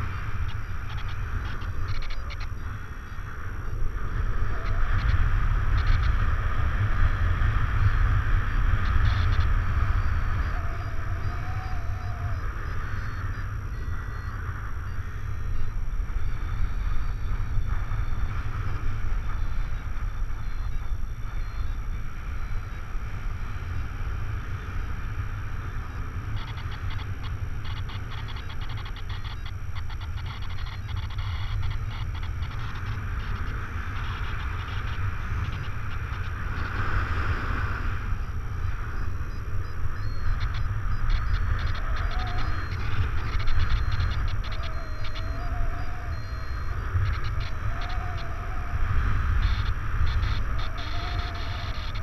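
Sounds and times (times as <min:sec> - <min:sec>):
wind rushing over microphone: 0:00.0 - 0:52.0
faint wavering whistle: 0:09.0 - 0:22.9, 0:38.0 - 0:52.0.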